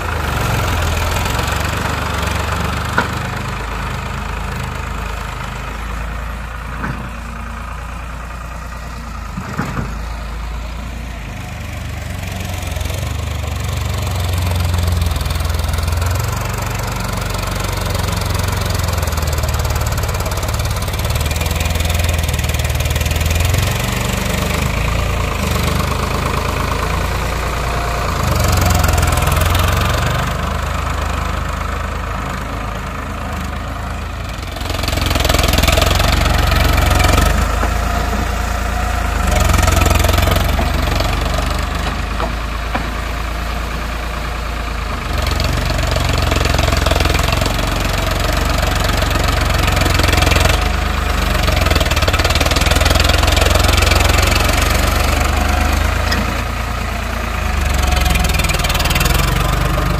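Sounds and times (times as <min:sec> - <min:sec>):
tractor diesel engine running: 0:00.0 - 0:59.9
blade pushing soil: 0:34.5 - 0:59.9.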